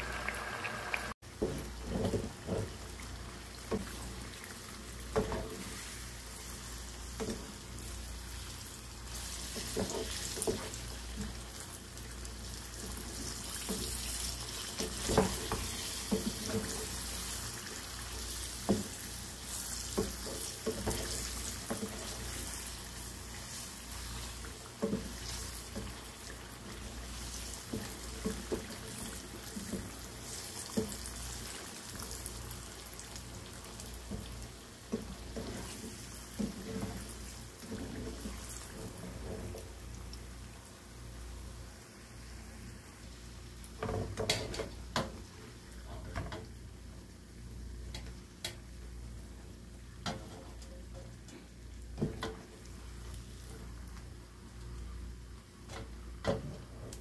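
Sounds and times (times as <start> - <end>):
oil sizzling: 0.0 - 57.0
wooden spatula scraping pot: 34.9 - 39.7.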